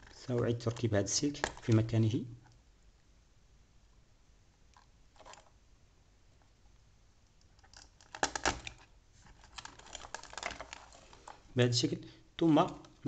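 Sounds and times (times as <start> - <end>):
connector clicks and rattles: 0.0 - 2.6, 7.3 - 11.4
wires rustling: 0.0 - 2.6, 4.7 - 5.6, 7.2 - 11.6.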